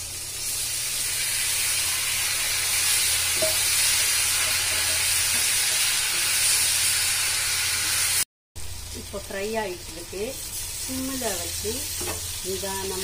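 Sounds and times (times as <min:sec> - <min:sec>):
food frying in hot oil: 0:00.0 - 0:13.0
spatula turning food in pan: 0:00.4 - 0:08.0.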